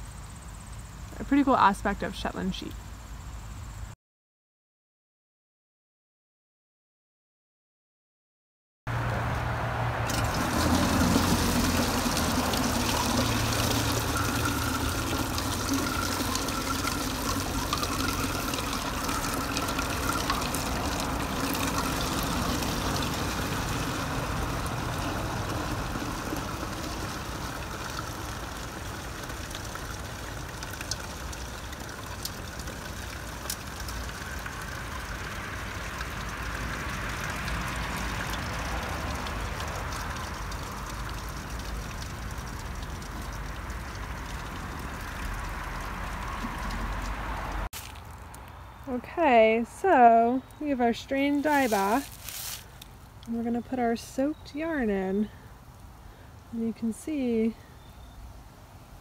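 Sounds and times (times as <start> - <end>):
liquid pouring through strainer: 10.0 - 47.7.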